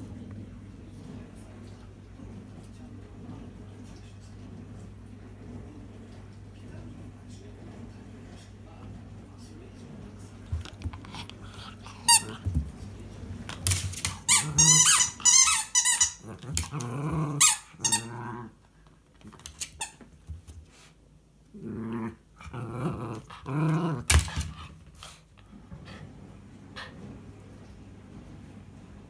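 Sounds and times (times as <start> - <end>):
dog growling: 10.6 - 12.5, 14.1 - 15.4, 16.1 - 18.6, 21.5 - 25.2
squeaky ball squeaking: 14.3 - 16.2.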